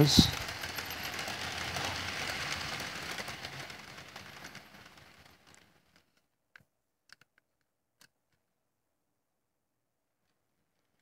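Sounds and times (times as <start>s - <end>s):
model train rattling on track: 0.0s - 6.2s.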